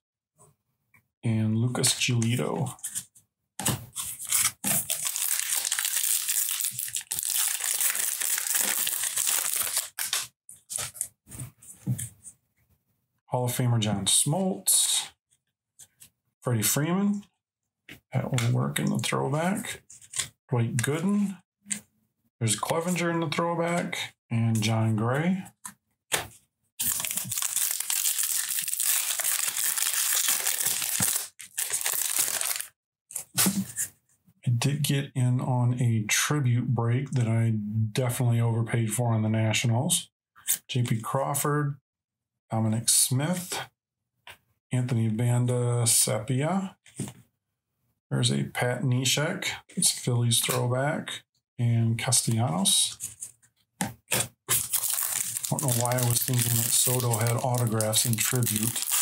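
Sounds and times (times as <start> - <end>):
foil wrapper crinkling and tearing: 4.0 - 10.3, 26.8 - 32.7, 54.5 - 59.0.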